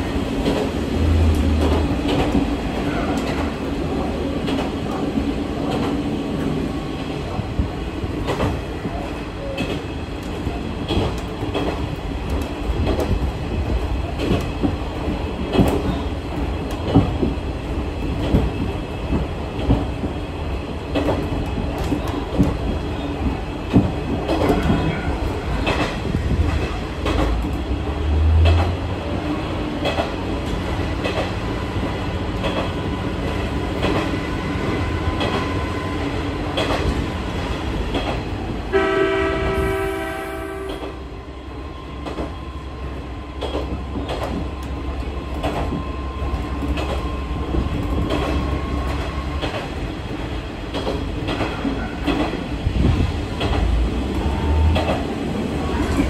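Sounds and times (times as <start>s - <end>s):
diesel railcar running: 0.0s - 56.0s
wheels clicking over rail joints: 20.9s - 35.6s, 36.5s - 38.5s, 43.4s - 56.0s
train horn: 38.7s - 41.2s, 54.2s - 54.9s.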